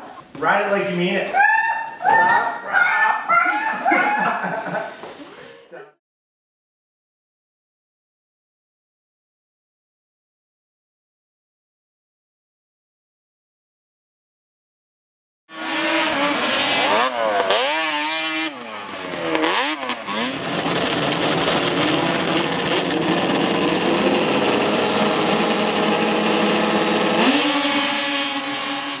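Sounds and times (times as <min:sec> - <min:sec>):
snowmobile engines revving: 0:00.0 - 0:04.9, 0:15.5 - 0:29.0.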